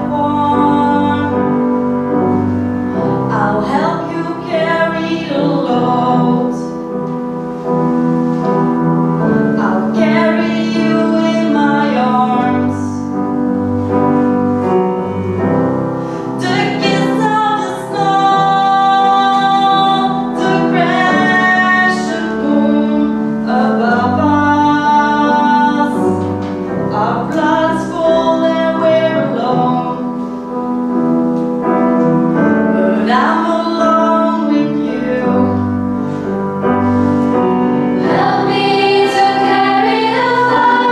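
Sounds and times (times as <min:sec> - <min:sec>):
woman singing: 0:00.0 - 0:01.6, 0:03.2 - 0:06.7, 0:09.6 - 0:13.1, 0:16.4 - 0:26.2, 0:26.9 - 0:30.0, 0:32.7 - 0:35.7
grand piano: 0:00.0 - 0:40.9.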